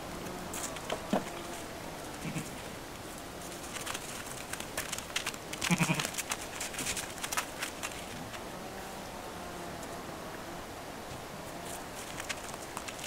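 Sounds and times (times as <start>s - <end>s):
sheep bleating: 2.2s - 2.6s
crisp clicks and crunches: 3.4s - 8.4s, 11.6s - 13.0s.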